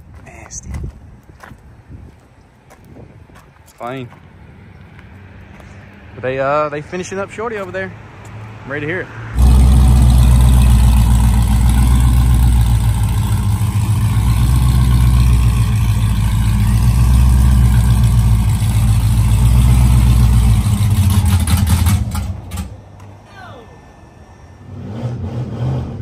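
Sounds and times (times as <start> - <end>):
car engine idling: 9.4 - 24.7.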